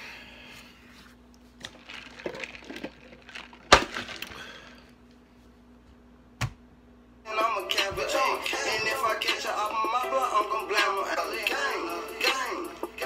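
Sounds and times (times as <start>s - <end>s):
music: 7.3s - 13.0s.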